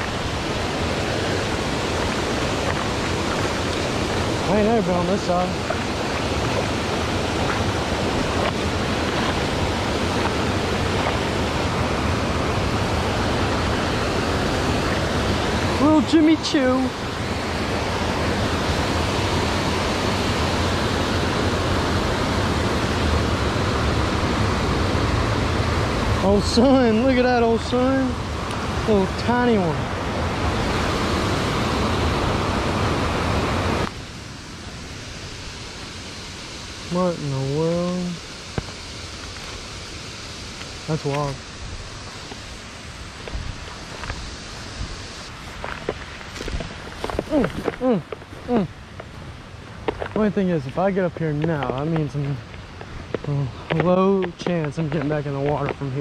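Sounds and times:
creek water over rocks: 0.0s - 56.0s
quiet outdoor hiss: 33.8s - 56.0s.

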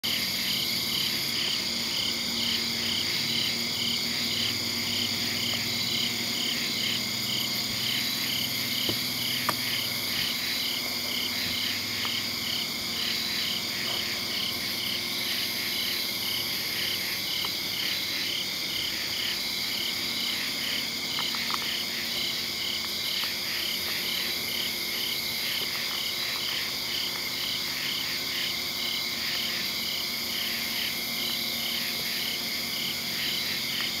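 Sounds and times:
insects trilling: 0.0s - 34.0s
pulsed insect chirp: 0.0s - 34.0s.

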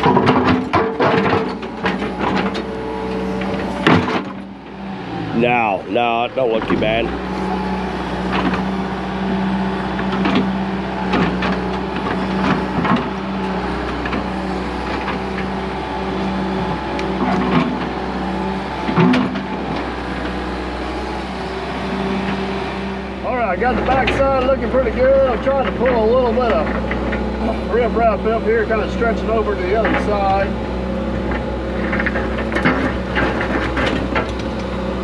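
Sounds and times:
rocks knocking and clattering: 0.0s - 2.7s
excavator diesel engine running: 0.0s - 35.0s.

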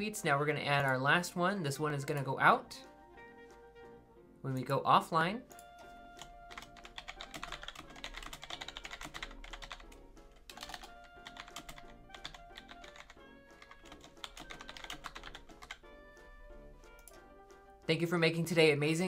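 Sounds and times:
background music: 0.0s - 19.0s
typing on computer keyboard: 5.5s - 15.8s.

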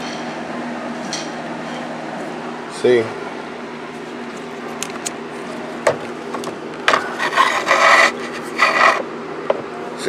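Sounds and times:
scraping inside car dashboard: 6.9s - 9.0s.

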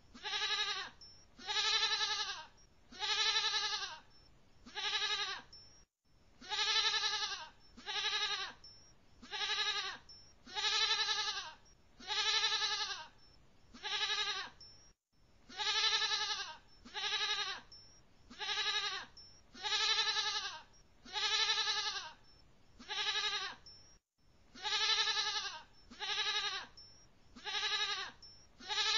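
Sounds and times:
goat bleating: 0.2s - 4.0s, 4.7s - 5.6s, 6.4s - 13.1s, 13.8s - 14.6s, 15.5s - 17.7s, 18.3s - 22.2s, 22.8s - 23.7s, 24.6s - 26.7s, 27.4s - 28.9s.

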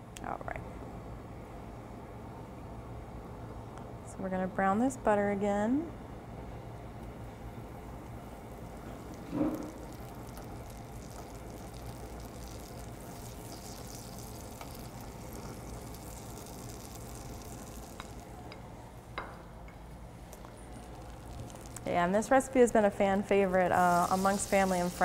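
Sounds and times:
butter sizzling in a skillet: 8.5s - 18.4s, 23.7s - 25.0s.

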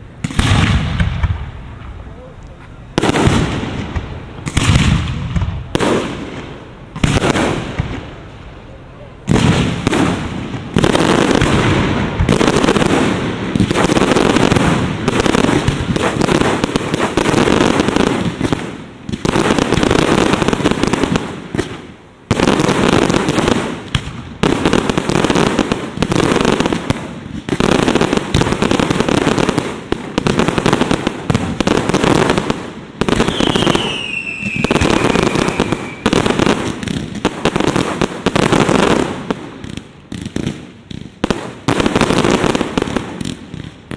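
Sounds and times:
fireworks booming: 0.0s - 43.9s
fireworks crackling: 0.0s - 43.9s
falling firework whistle: 33.2s - 36.3s.

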